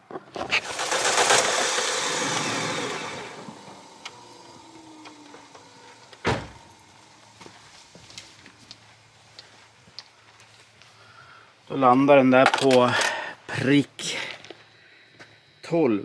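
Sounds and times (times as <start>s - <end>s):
thump: 6.2s - 6.6s.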